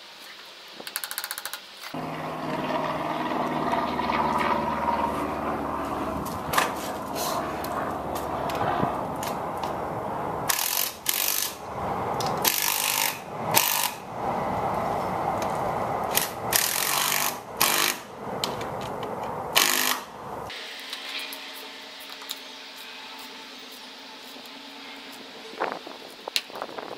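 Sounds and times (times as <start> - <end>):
steady background hum: 2.0 - 26.9
harsh mechanical tool bursts: 10.5 - 11.6, 12.4 - 14.0, 16.1 - 18.1, 19.6 - 20.6.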